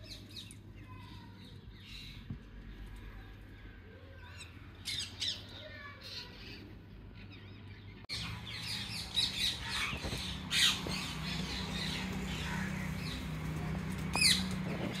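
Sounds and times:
parakeets squawking and chirping: 4.3s - 15.0s.

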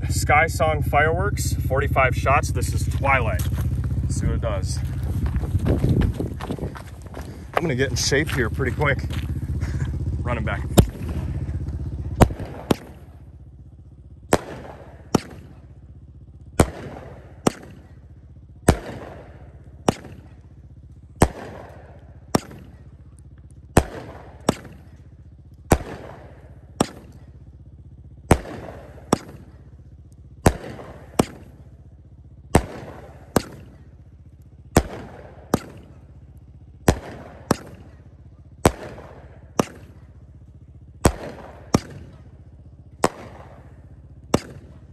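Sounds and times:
fireworks bangs: 2.0s - 13.3s, 36.8s - 38.0s.

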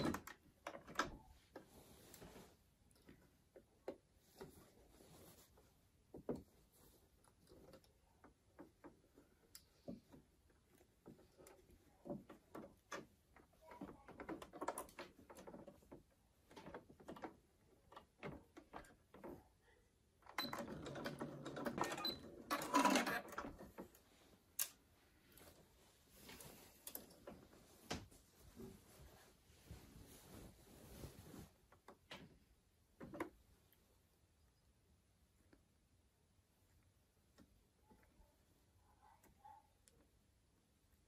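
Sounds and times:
fabric rustling: 1.2s - 3.4s, 4.1s - 7.8s, 23.6s - 31.9s
sewing machine stitching: 20.3s - 23.6s.

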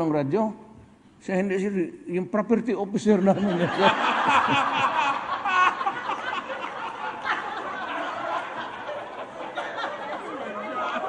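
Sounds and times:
audience laughing: 3.2s - 11.0s.

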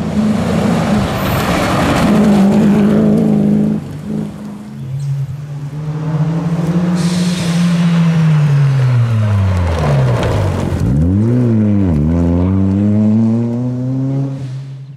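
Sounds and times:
rally car engine passing: 0.0s - 14.9s
gravel and tyre hiss: 6.4s - 11.0s.

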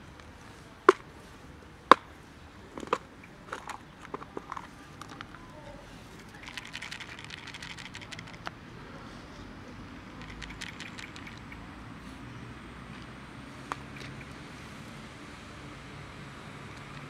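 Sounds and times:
plastic container clicking: 2.8s - 5.4s
fast crackling clicks: 6.2s - 8.6s, 10.2s - 11.7s.

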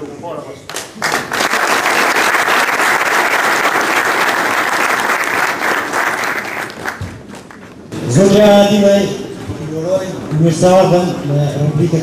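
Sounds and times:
audience applauding: 0.7s - 7.7s.

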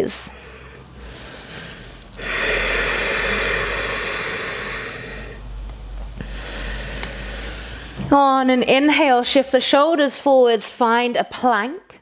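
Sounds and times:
woman breathing: 0.2s - 8.1s.

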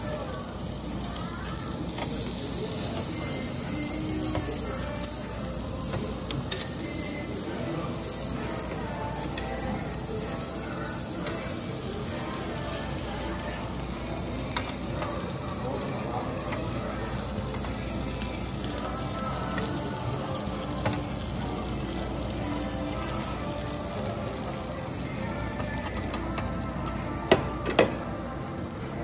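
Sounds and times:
meat sizzling on grill: 0.0s - 29.0s.

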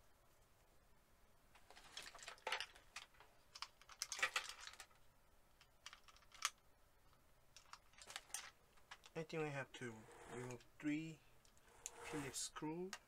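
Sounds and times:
scratching: 9.8s - 10.8s, 11.5s - 12.6s.

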